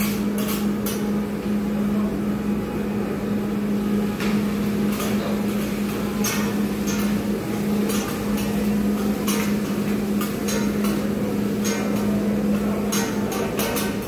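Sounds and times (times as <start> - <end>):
low mechanical hum: 0.0 - 14.0
metal utensils clinking on grill: 7.8 - 12.1, 12.8 - 14.0.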